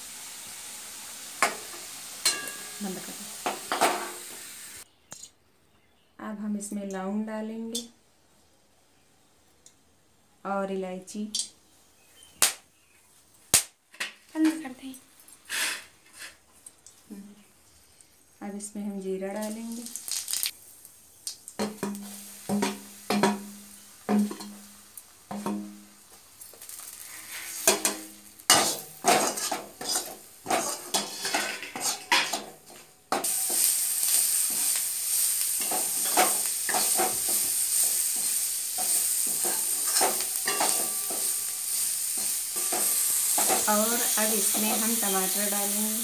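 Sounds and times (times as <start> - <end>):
spices frying in oil: 0.0 - 4.9, 18.0 - 46.0
steady sizzle: 0.0 - 4.9, 15.1 - 46.0
metal ladle scraping a pan: 27.0 - 43.7.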